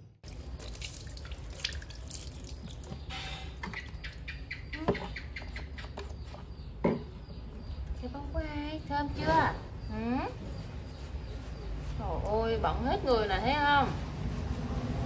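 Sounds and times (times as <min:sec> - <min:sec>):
water pouring and splashing: 0:00.0 - 0:04.0
water dripping into basin: 0:00.2 - 0:06.8.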